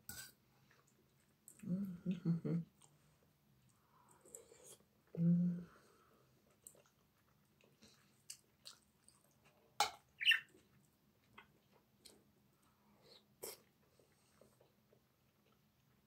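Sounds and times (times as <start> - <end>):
chewing and mouth noises: 6.3 - 9.8, 10.5 - 16.0.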